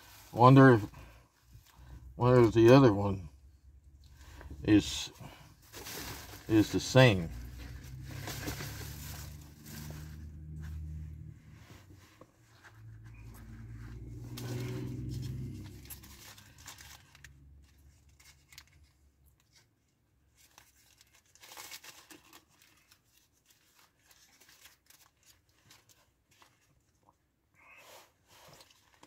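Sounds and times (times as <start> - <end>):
low rumble: 12.7 - 17.3
paper wrapper crinkling and tearing: 14.3 - 19.7, 20.3 - 26.7.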